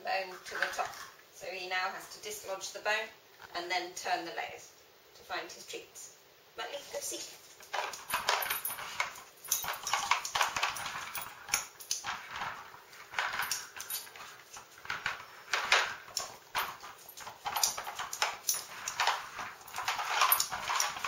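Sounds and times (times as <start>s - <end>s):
plastic puzzle clacking and rattling: 7.7s - 21.0s.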